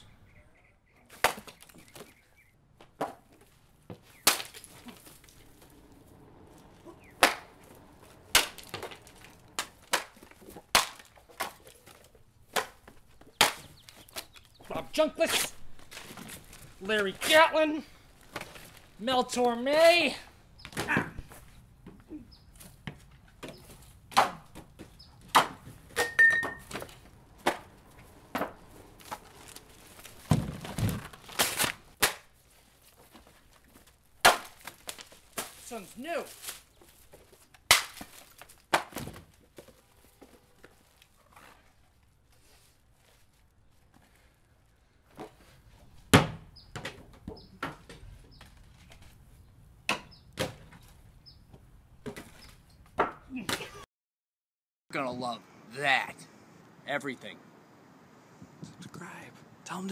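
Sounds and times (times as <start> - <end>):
vinyl records smashing: 4.1 - 14.3, 24.1 - 32.3, 37.6 - 39.5
vinyl records smashing and snapping: 7.2 - 11.6, 28.4 - 32.3, 34.2 - 35.6, 37.6 - 39.4.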